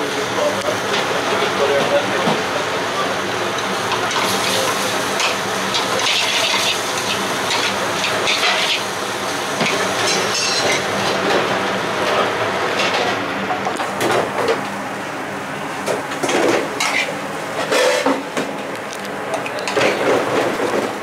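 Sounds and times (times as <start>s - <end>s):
steady background hum: 0.0s - 21.0s
food sizzling: 3.6s - 11.0s
metal spoon scraping frying pan: 16.8s - 18.2s.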